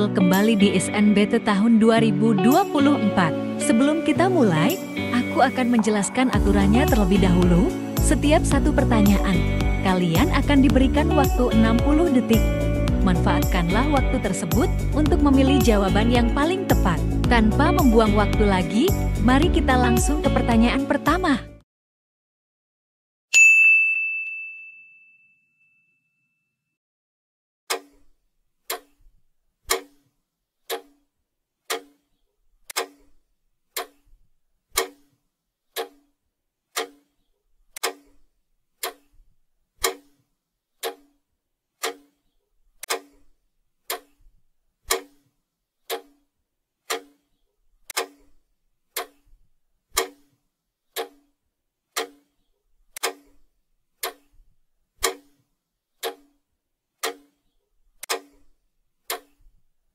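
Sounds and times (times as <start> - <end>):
clock ticking: 5.6 - 21.3, 28.7 - 28.9, 29.7 - 30.0, 30.7 - 31.0, 31.7 - 32.0, 32.7 - 33.1, 34.8 - 35.1, 35.8 - 36.1, 36.8 - 37.1, 37.8 - 38.2, 38.8 - 39.1, 39.8 - 40.2, 40.8 - 41.2, 41.8 - 42.2, 42.8 - 43.2, 43.9 - 44.2, 44.9 - 45.2, 45.9 - 46.2, 46.9 - 47.2, 47.9 - 48.3, 48.9 - 49.3, 49.9 - 50.3, 51.0 - 51.3, 52.0 - 52.3, 53.0 - 53.4, 54.0 - 54.3, 55.0 - 55.4, 56.0 - 56.4, 57.0 - 57.4, 59.1 - 59.3.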